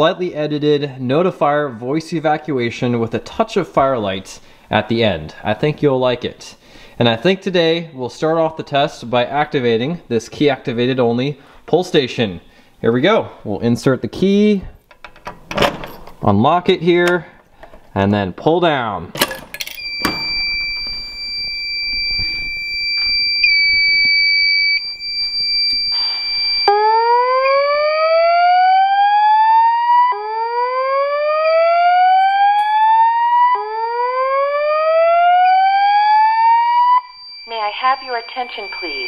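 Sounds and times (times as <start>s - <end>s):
fire alarm pull station snap: 19.2s - 21.9s
high-pitched electronic alarm tone: 19.8s - 39.0s
rising whoop alarm tone: 25.9s - 39.0s.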